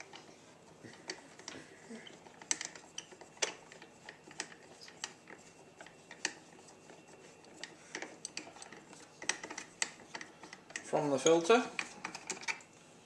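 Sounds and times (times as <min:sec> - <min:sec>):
small clicks of hands loosening screws: 0:00.9 - 0:06.4, 0:07.4 - 0:10.9.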